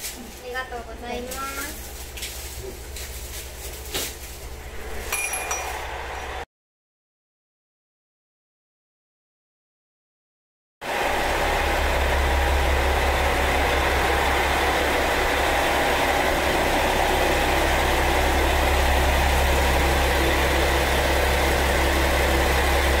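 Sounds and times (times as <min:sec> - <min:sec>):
diesel railcar engine idling: 0:10.9 - 0:23.0.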